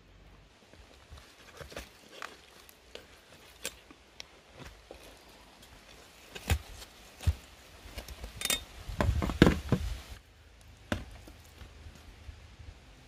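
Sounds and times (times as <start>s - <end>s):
knocks and clatter of utensils: 8.4s - 9.8s.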